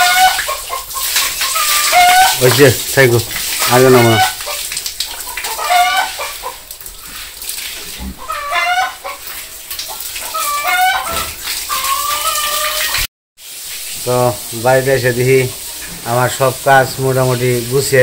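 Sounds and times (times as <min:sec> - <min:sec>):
chickens clucking: 0:00.0 - 0:02.7, 0:03.5 - 0:07.2, 0:07.9 - 0:13.0.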